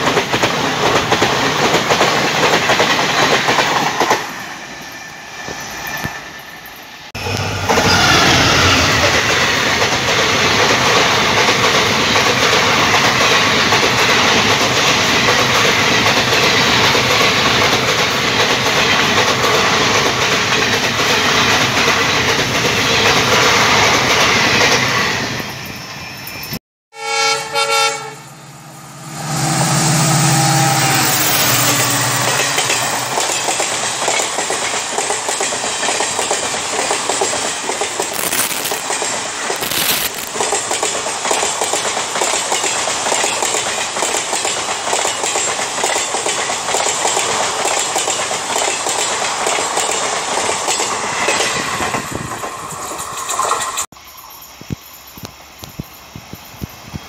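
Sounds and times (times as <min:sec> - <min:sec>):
train wheels clattering over rails: 0:00.0 - 0:04.5, 0:07.2 - 0:25.5, 0:31.5 - 0:53.9
locomotive horn blasts: 0:26.9 - 0:32.7.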